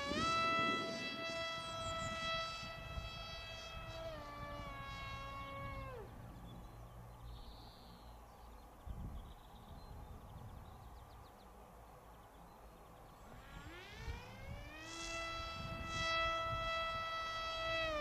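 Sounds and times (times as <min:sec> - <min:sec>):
model plane motor whine: 0:00.0 - 0:06.7, 0:13.2 - 0:18.0
low wind rumble: 0:00.0 - 0:18.0.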